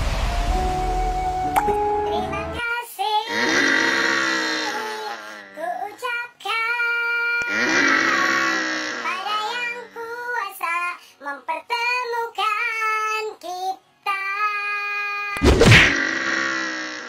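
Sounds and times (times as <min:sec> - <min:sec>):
high child-like singing voice: 0:01.7 - 0:03.6, 0:04.6 - 0:15.4
loud thump: 0:15.4 - 0:16.0.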